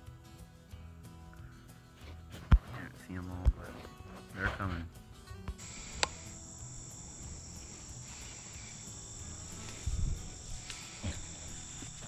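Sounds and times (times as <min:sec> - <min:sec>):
crickets trilling: 0:05.6 - 0:12.0.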